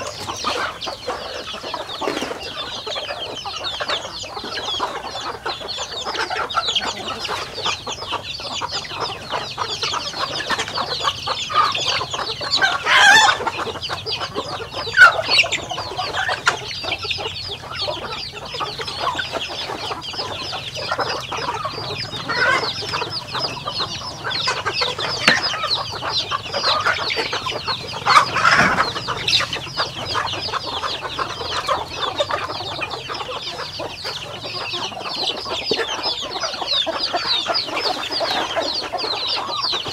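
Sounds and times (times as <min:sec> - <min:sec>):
chickens clucking: 0:00.0 - 0:39.9
chicks peeping: 0:00.0 - 0:39.9.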